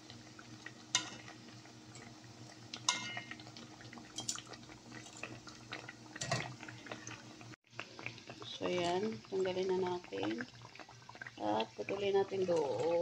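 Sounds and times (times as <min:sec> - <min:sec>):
oil crackling and bubbling: 0:00.0 - 0:13.0
metal tongs clinking on pan: 0:00.9 - 0:01.2, 0:02.9 - 0:03.4, 0:04.2 - 0:04.5.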